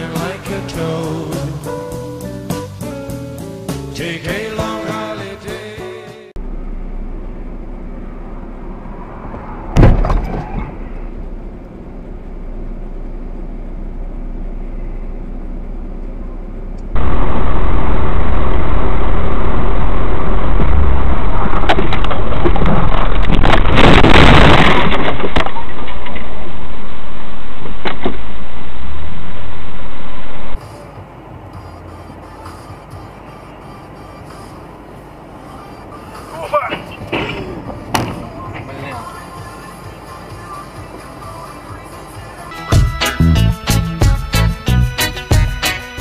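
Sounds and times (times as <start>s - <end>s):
distorted vehicle noise: 0.0s - 46.0s
road and engine noise: 0.0s - 46.0s
car collision bang: 9.7s - 10.9s
long crunching burst: 17.0s - 25.4s.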